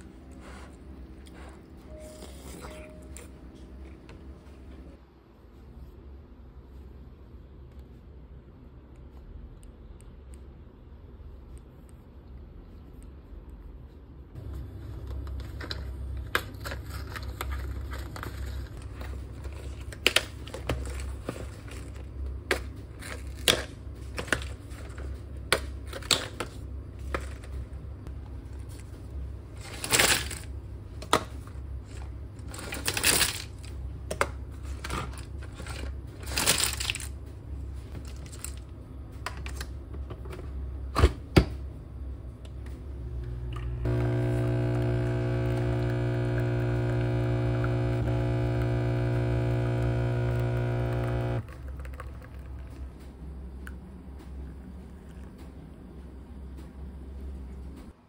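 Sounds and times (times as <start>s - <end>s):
steady low hum: 41.5s - 58.0s.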